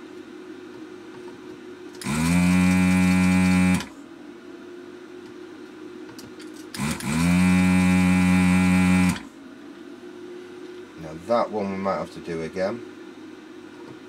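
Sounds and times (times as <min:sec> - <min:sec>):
vacuum pump motor humming: 0:02.0 - 0:04.0, 0:06.7 - 0:09.4.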